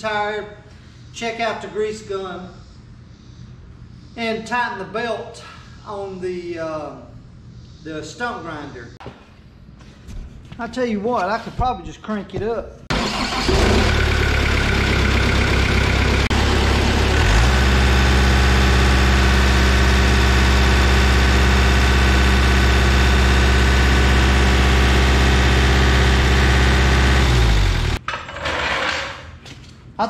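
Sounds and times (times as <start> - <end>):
stump grinder engine running: 12.9 - 28.0.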